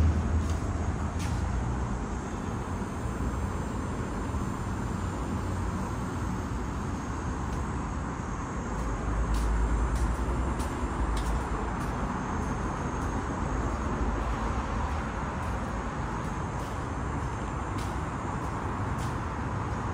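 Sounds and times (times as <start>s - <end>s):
street traffic rumble: 0.0s - 19.9s.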